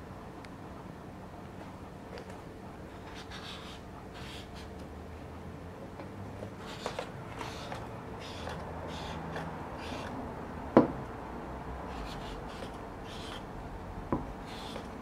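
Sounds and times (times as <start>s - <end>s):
low steady hum: 0.0s - 15.0s
short rasping scrapes: 6.6s - 10.2s, 11.9s - 13.5s, 14.5s - 15.0s.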